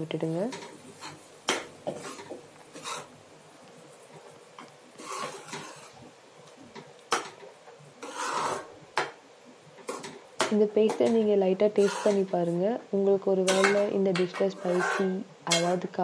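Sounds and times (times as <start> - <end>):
metal spoon scraping pan: 0.5 - 3.1, 5.0 - 6.0, 8.0 - 8.7, 9.8 - 12.5, 13.4 - 15.9.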